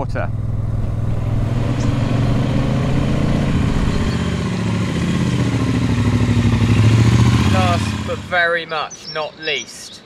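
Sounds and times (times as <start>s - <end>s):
motorcycle engine approaching: 0.0s - 8.5s.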